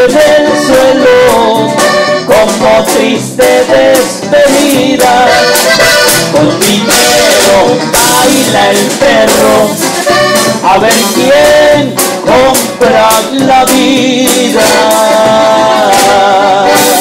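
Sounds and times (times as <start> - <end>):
guitar and band backing: 0.0 - 17.0
man singing into a microphone: 0.0 - 17.0.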